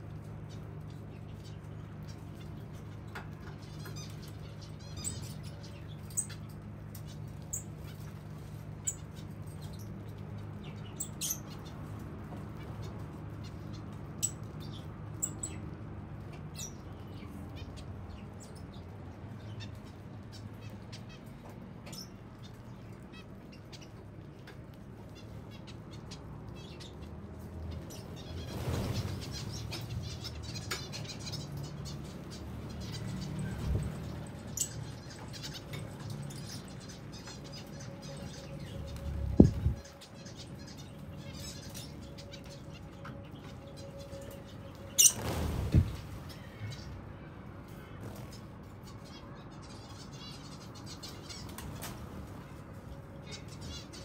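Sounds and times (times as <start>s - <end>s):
finches chirping: 27.9s - 46.8s.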